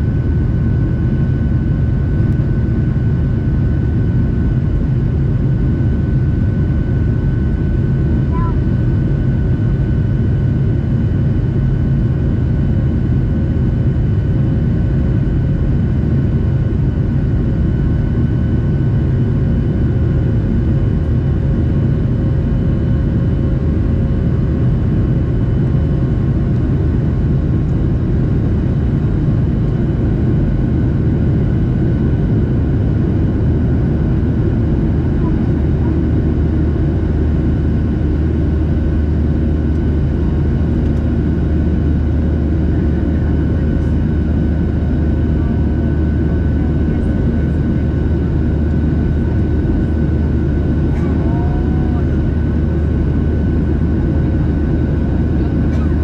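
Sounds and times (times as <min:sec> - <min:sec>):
jet engine cabin rumble: 0:00.0 - 0:56.0.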